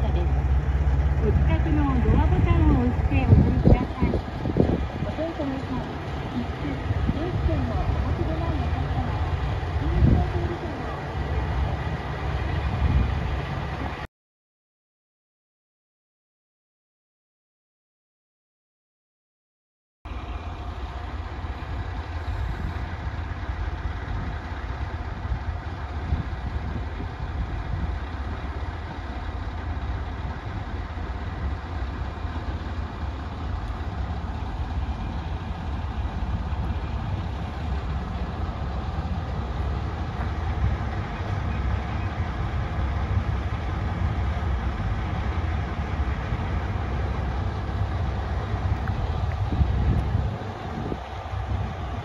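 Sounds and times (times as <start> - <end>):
diesel engine idling: 0.0 - 14.1, 20.1 - 52.0.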